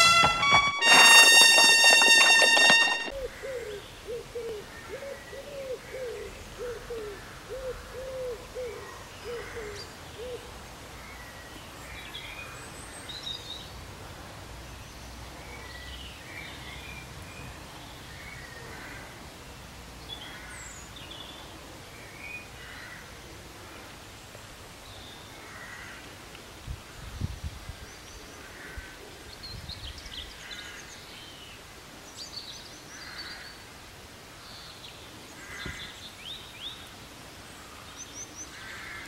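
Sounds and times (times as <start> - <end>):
brass fanfare: 0.0 - 3.1
outdoor background noise: 0.0 - 39.0.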